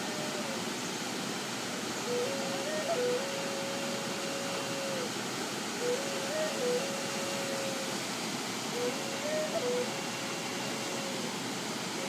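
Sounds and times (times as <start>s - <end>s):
flute playing slow melody: 0.0s - 0.6s, 2.0s - 5.1s, 5.8s - 8.0s, 8.7s - 11.3s
waterfall rushing: 0.0s - 12.0s.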